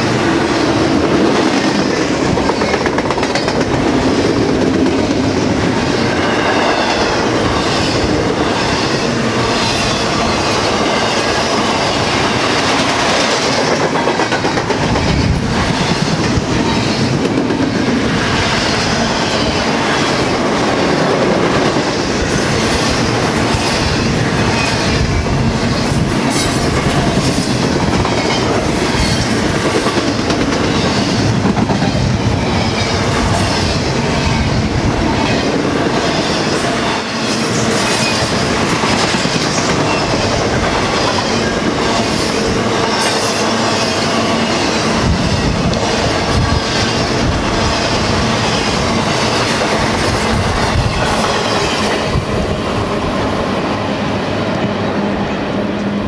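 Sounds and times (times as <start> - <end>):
train cars rumbling past: 0.0 - 56.0
wheels clacking on rail joints: 0.9 - 18.0.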